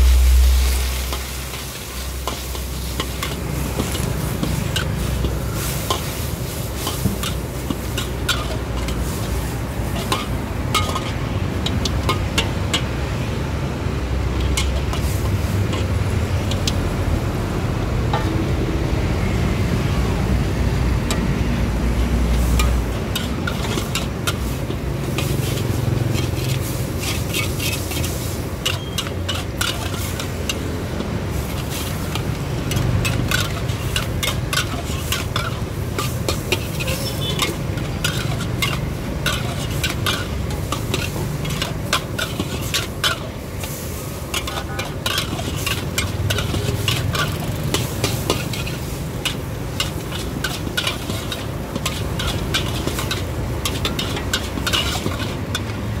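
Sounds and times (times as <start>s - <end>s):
low rumble: 0.0s - 1.5s
metal spatula scraping a wok: 0.0s - 16.8s, 21.0s - 56.0s
food sizzling: 0.0s - 56.0s.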